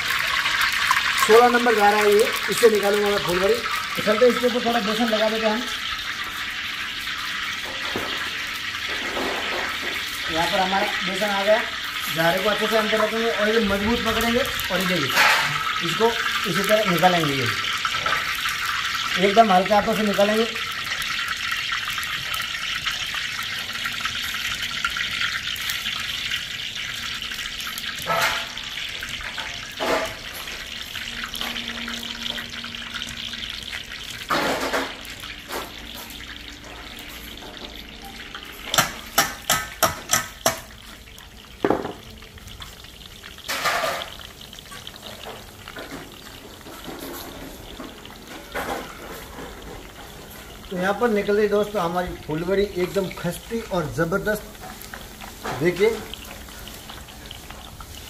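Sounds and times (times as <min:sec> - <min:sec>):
oil sizzling: 0:00.0 - 0:58.0.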